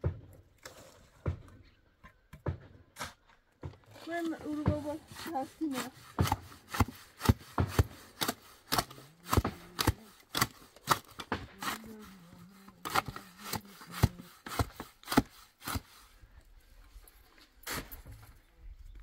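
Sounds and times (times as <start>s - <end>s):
shovel scraping mortar: 2.9s - 16.2s, 17.6s - 18.3s.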